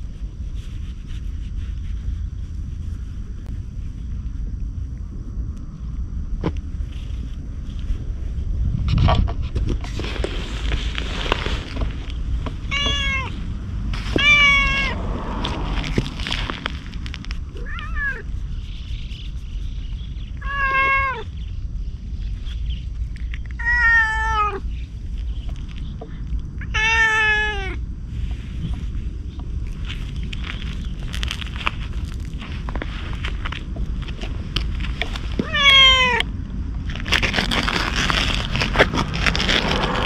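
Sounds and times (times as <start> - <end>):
rustle: 0.0 - 4.4, 6.4 - 40.0
cat meowing: 12.7 - 13.4, 14.1 - 15.0, 17.5 - 18.3, 20.4 - 21.3, 23.6 - 24.6, 26.6 - 27.8, 35.4 - 36.3.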